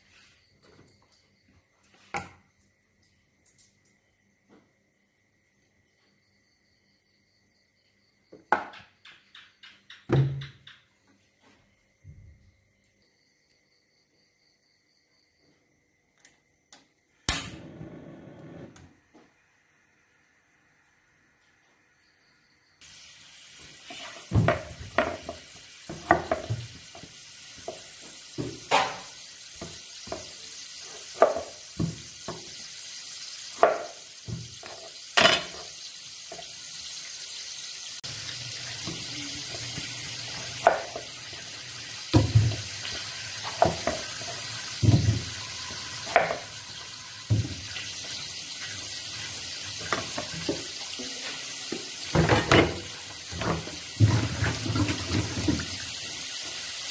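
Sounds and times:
tap water running into sink: 22.8 - 56.9
knocks and clunks in sink: 24.3 - 26.7, 31.2 - 32.4, 42.1 - 42.7, 44.8 - 45.4, 52.1 - 55.8.

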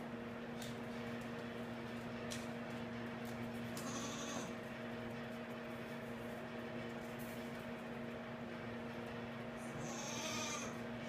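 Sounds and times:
low electrical hum: 0.0 - 11.0
goat kid bleating: 3.8 - 4.6, 9.7 - 10.8.

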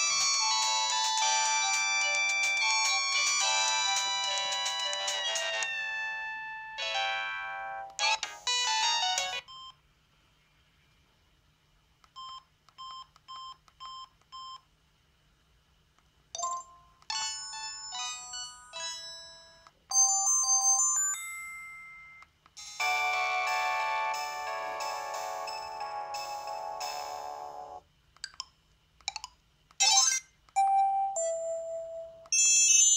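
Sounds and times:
synthesized phone ringtones: 0.0 - 6.2.

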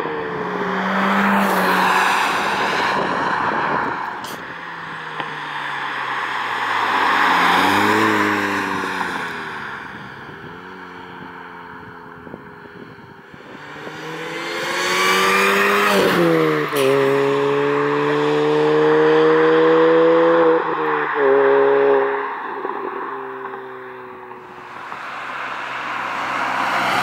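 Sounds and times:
car engine accelerating past: 6.6 - 9.4, 13.5 - 27.0.

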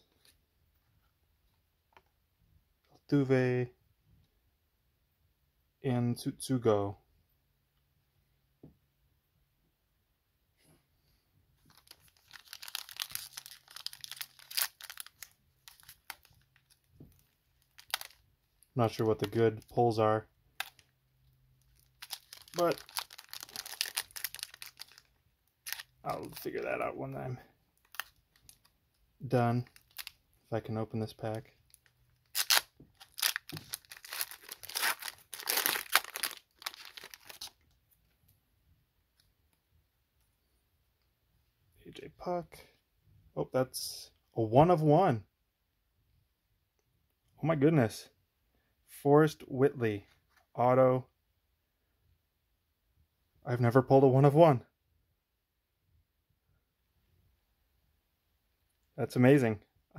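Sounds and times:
foil wrapper crinkling and tearing: 11.7 - 18.2, 21.6 - 26.5, 27.8 - 28.7, 29.6 - 30.2, 31.7 - 37.6.

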